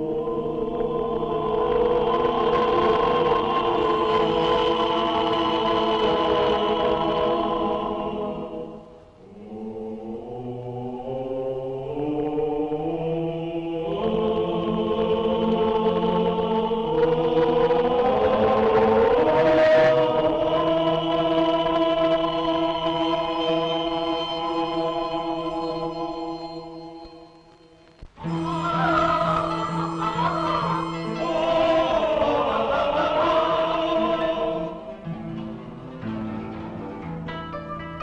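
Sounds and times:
choir singing held chords: 0:00.0 - 0:36.2.

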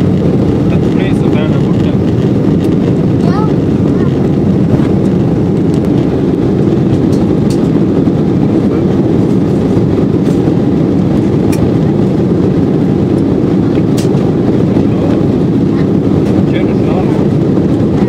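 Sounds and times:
airflow: 0:00.0 - 0:18.0
airplane cabin engine rumble: 0:00.0 - 0:18.0.

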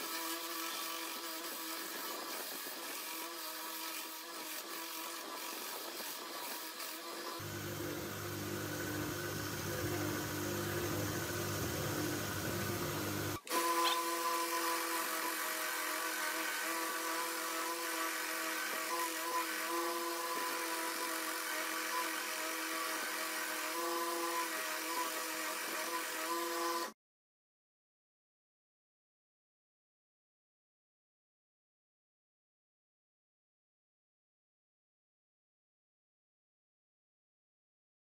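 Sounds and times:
belt grinder whining: 0:00.0 - 0:26.9.

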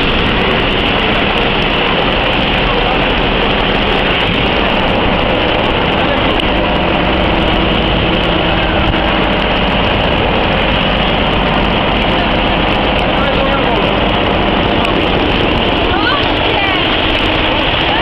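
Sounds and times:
fire engine running: 0:00.0 - 0:18.0
water spraying from hose: 0:00.0 - 0:18.0.

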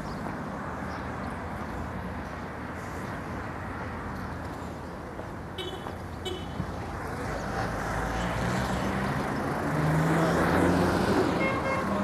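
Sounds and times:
vehicle passing close by: 0:07.0 - 0:12.0.

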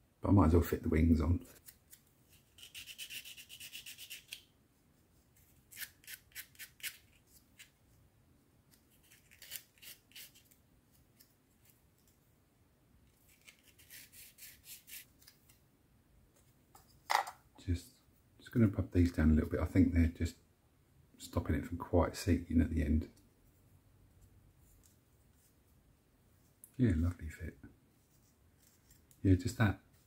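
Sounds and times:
scratchy sanding strokes on plastic: 0:02.3 - 0:04.4.

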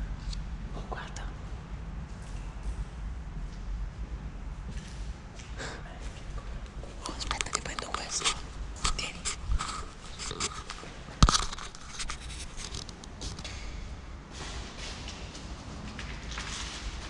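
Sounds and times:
camera handling noise: 0:07.2 - 0:13.5.

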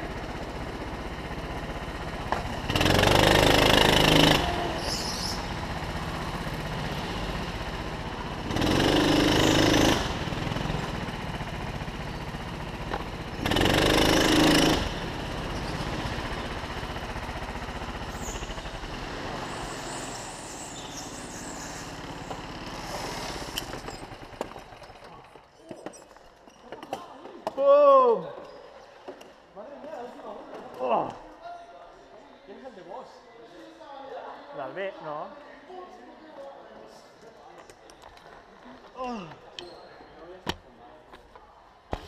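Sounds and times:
go-kart engine revving: 0:00.0 - 0:25.3.

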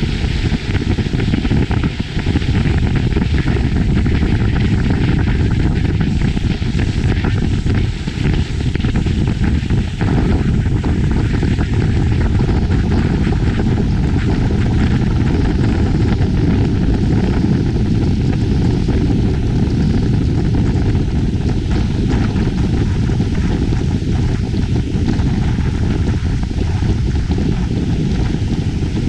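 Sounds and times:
motorboat engine: 0:00.0 - 0:29.0
rushing water from wake: 0:00.0 - 0:29.0
wind buffeting microphone: 0:00.0 - 0:29.0.

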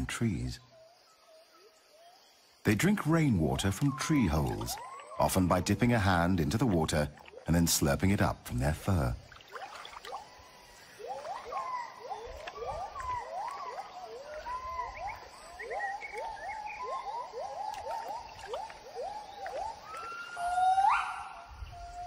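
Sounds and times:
gibbons whooping calls: 0:10.1 - 0:22.0.

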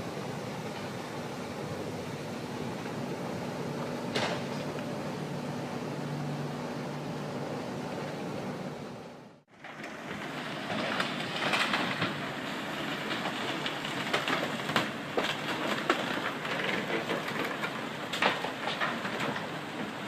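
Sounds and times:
boat hulls cracking and crunching: 0:09.6 - 0:20.0.

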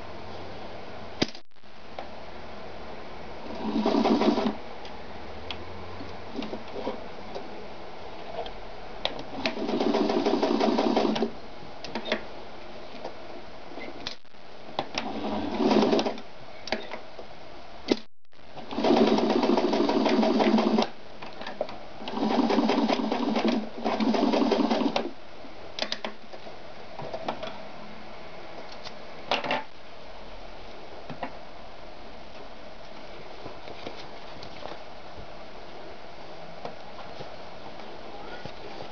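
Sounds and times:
sewing machine stitching: 0:03.5 - 0:04.6, 0:09.3 - 0:11.3, 0:15.0 - 0:16.2, 0:18.6 - 0:21.0, 0:22.0 - 0:25.1.

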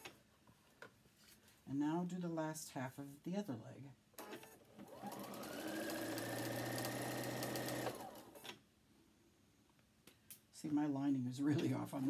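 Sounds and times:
sewing machine motor whining: 0:04.8 - 0:08.4.

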